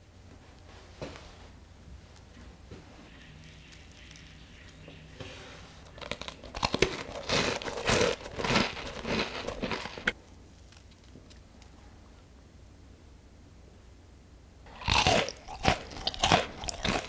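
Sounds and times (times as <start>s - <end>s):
scone crust crackling: 2.1s - 11.8s, 14.7s - 17.0s.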